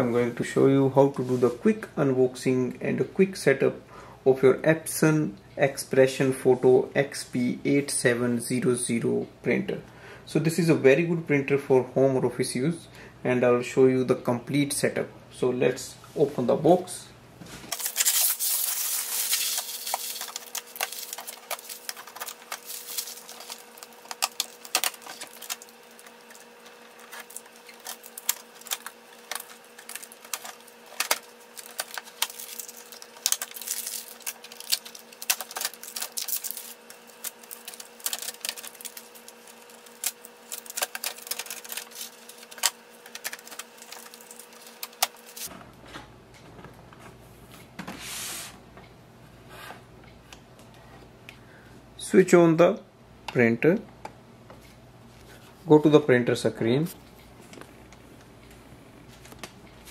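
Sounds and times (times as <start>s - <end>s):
faint steady hum: 0.0s - 59.9s
cardboard and plastic tearing: 17.7s - 45.5s
tape peeling clicks and rustles: 17.7s - 45.5s.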